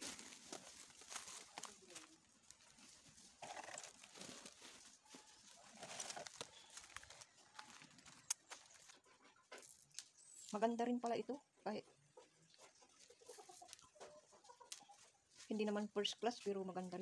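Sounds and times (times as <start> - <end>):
plastic sack rustling: 0.0 - 2.0
footsteps on dry leaves: 0.0 - 3.2, 3.9 - 8.6.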